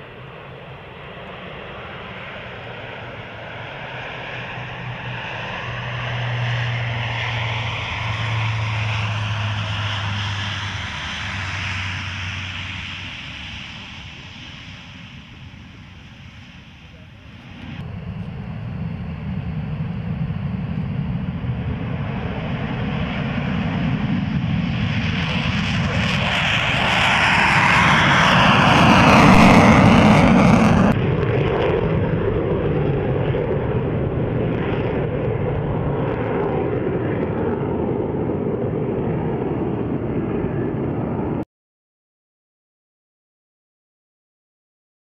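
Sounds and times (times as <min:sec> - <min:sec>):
jet taking off: 0:00.0 - 0:41.4.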